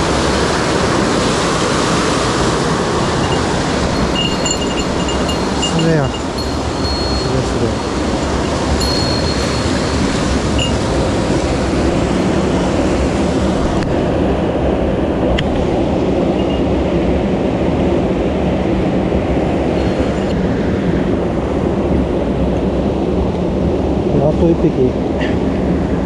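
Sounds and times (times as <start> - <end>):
stream rushing over boulders: 0.0 - 17.1.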